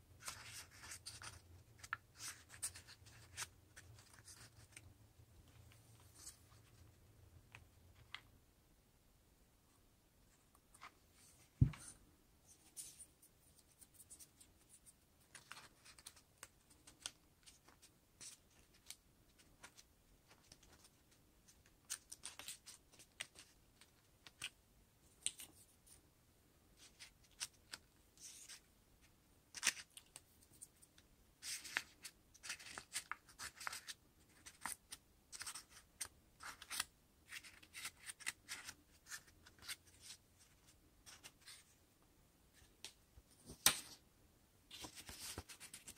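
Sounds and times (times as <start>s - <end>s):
paper crinkling and rustling: 44.7s - 45.9s.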